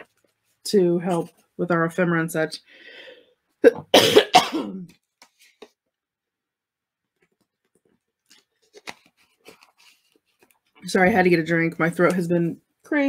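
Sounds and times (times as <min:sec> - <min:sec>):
woman coughing: 0:03.6 - 0:04.9.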